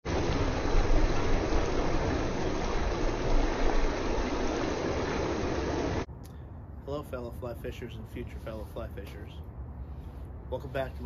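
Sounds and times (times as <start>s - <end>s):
stream rushing over rocks: 0.1s - 6.1s.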